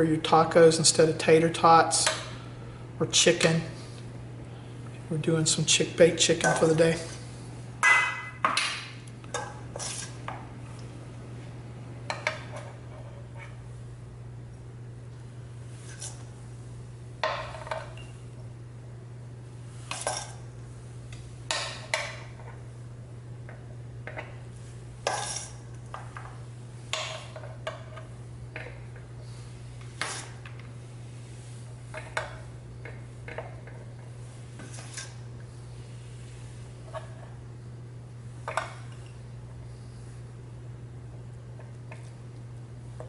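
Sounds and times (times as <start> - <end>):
steady low hum: 0.0 - 43.0
metal spoon scraping bowl: 9.8 - 10.2.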